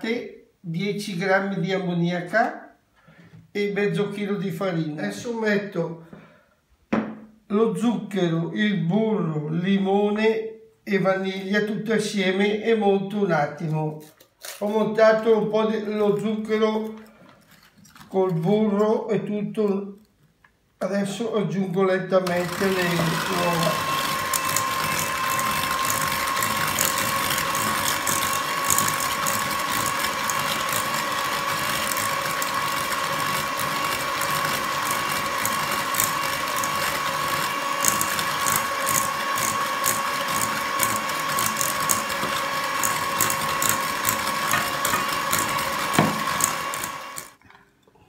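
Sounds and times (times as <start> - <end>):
electric hand mixer whining: 22.2 - 47.4.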